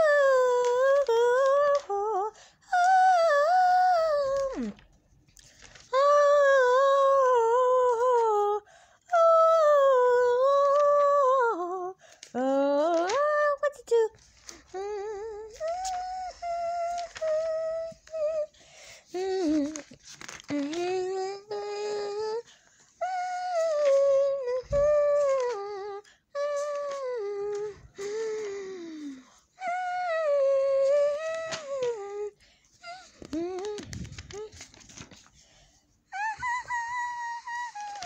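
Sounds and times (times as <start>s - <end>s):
child humming: 20.6s - 22.5s, 36.1s - 38.0s.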